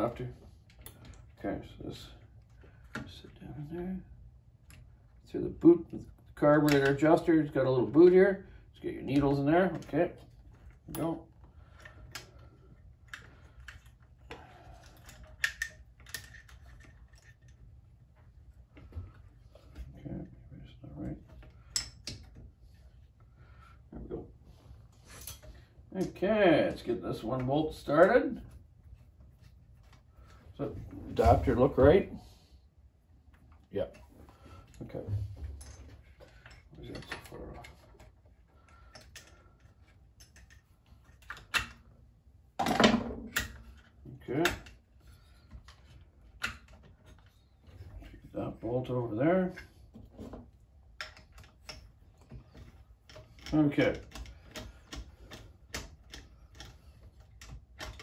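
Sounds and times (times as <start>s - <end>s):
small metal parts clicking: 13.0s - 17.6s
clatter of tools: 13.1s - 17.6s
hand tools clicking on metal: 51.0s - 58.0s.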